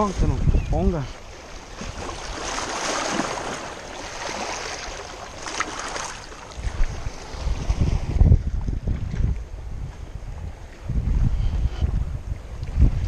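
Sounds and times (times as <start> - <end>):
waves splashing against rocks: 1.0 - 9.4.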